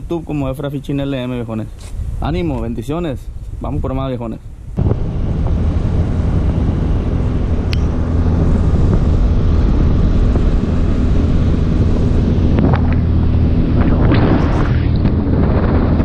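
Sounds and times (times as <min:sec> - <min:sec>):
wind and water rushing: 0:00.0 - 0:16.0
outboard motor running: 0:04.8 - 0:16.0.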